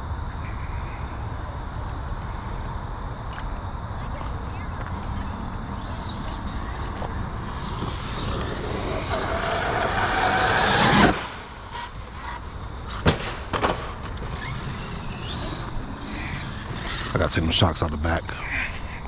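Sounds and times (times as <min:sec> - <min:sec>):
electric motor whining: 0:05.6 - 0:13.0, 0:14.0 - 0:17.6.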